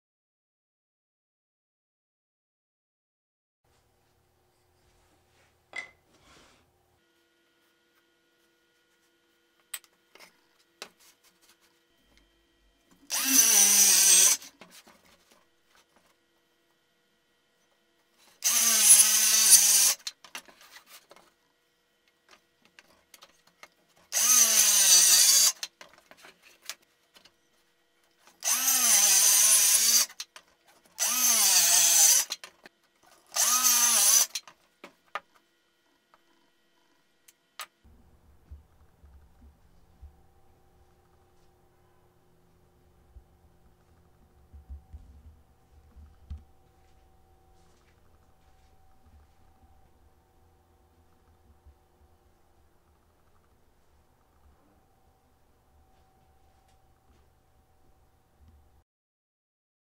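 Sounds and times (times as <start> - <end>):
circular saw cutting wood: 13.0 - 14.6, 18.3 - 20.1, 24.1 - 25.7, 28.4 - 30.3, 31.0 - 32.4, 33.2 - 34.5.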